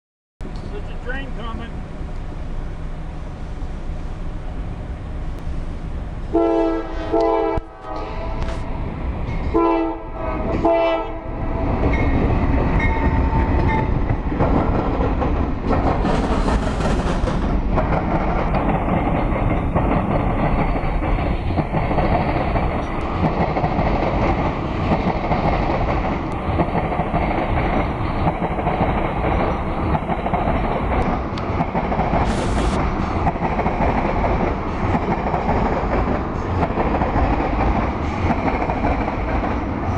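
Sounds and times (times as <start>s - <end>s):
locomotives passing: 0.5s - 39.9s
locomotive horn: 6.3s - 8.5s, 9.5s - 11.4s
tank cars rumbling over rails: 11.3s - 39.7s.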